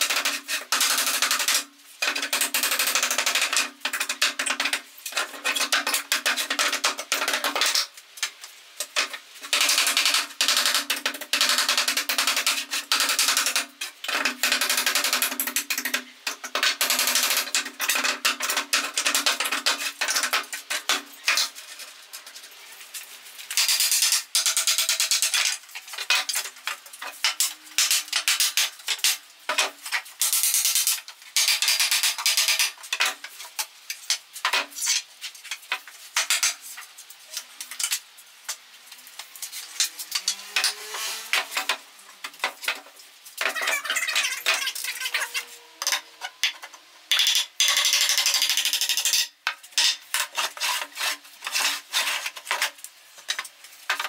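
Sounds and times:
hammer striking wooden boards: 0.0 - 7.8, 27.3 - 29.7.

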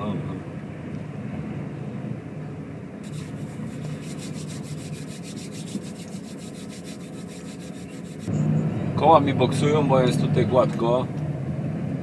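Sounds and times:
tyres scrubbing on wet road: 3.0 - 8.3
truck engine humming: 3.0 - 8.5.

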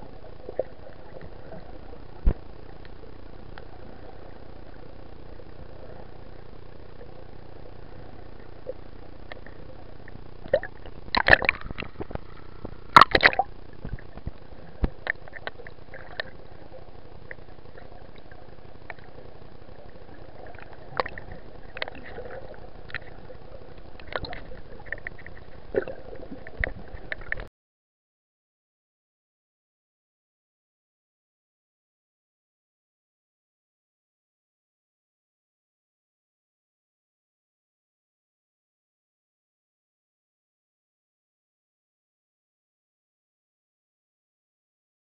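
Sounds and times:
faint clicks and gurgles: 0.0 - 27.5
steady underwater hiss: 0.0 - 27.5.

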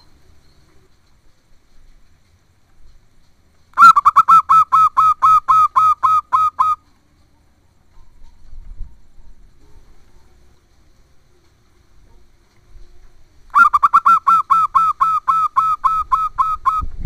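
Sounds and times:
dove cooing: 3.8 - 6.8, 13.6 - 16.8.

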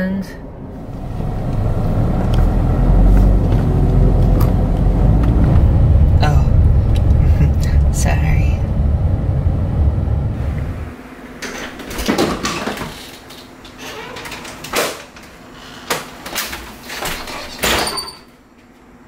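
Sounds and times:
low car cabin rumble: 0.6 - 11.0.

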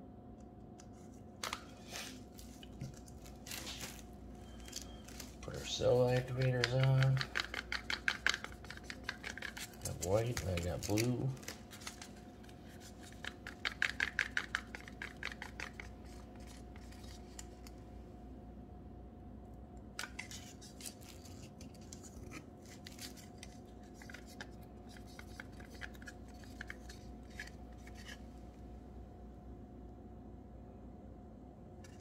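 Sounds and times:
faint steady hum: 0.0 - 32.0
plastic bottles clicking and tapping: 6.0 - 11.4.

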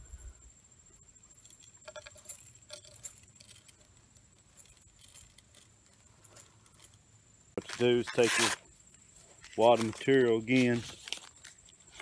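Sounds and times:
paper crinkling: 9.4 - 12.0.

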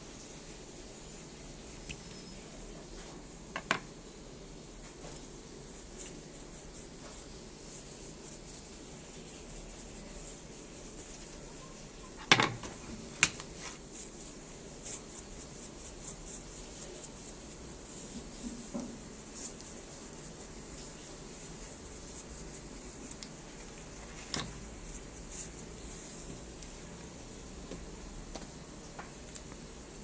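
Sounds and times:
fish knocking on wooden board: 3.6 - 3.9.

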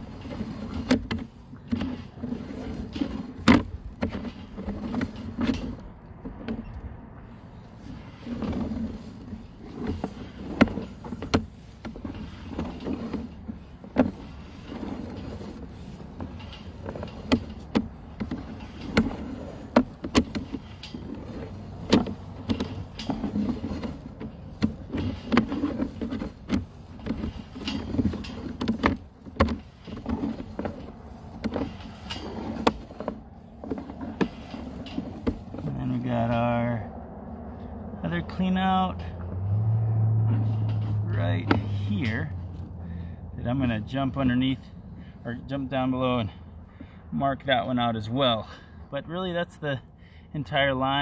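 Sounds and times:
cable clicking and knocking: 0.0 - 6.9, 7.8 - 36.4.

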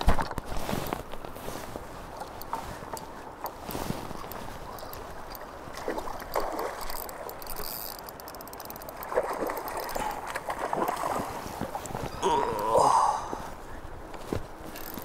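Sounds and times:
fast river water rushing: 8.8 - 13.6.

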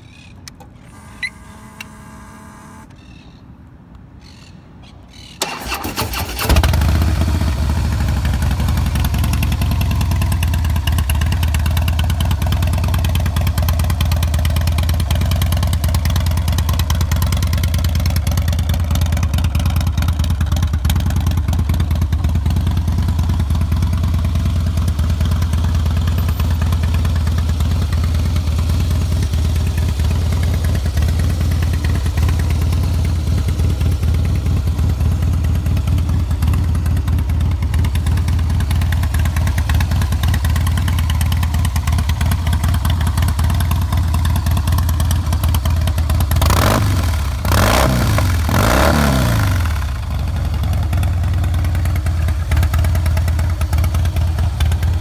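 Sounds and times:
electric starter cranking: 5.4 - 6.8
motorcycle engine idling: 6.6 - 55.0.

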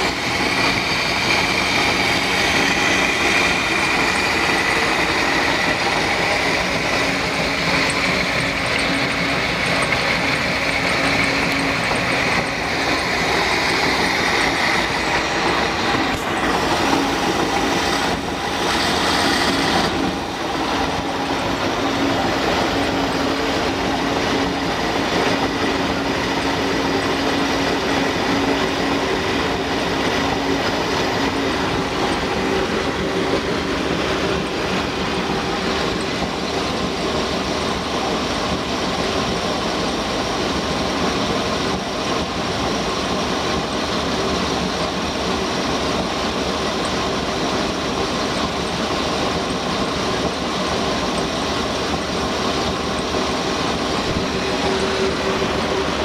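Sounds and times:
boat engine running: 41.8 - 56.0.

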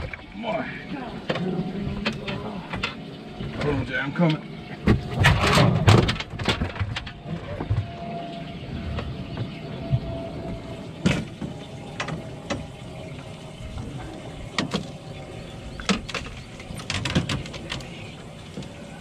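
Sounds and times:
hiss of wind and water: 0.0 - 19.0
gear knocking and clicking: 8.9 - 19.0.

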